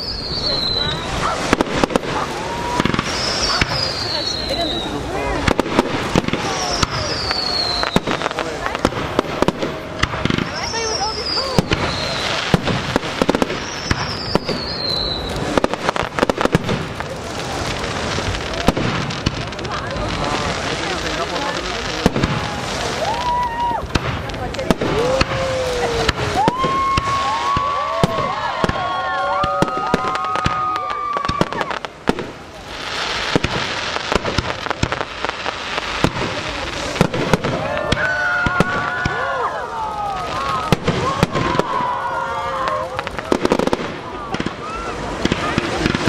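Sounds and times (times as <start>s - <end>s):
falling high whistle: 0.0s - 1.4s, 13.6s - 15.4s
firework whistles gliding in pitch: 0.0s - 5.1s, 6.2s - 8.5s, 10.3s - 12.6s, 13.2s - 15.7s, 24.9s - 31.8s
fireworks bangs and crackles: 0.0s - 46.0s.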